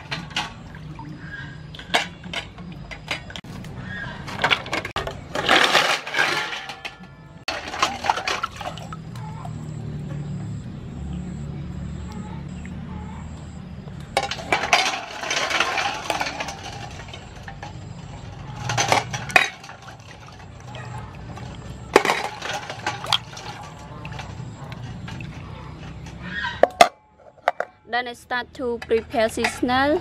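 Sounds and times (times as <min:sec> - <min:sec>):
water splashing in a metal bowl: 0:00.0 - 0:03.5, 0:04.3 - 0:10.3, 0:14.0 - 0:26.7.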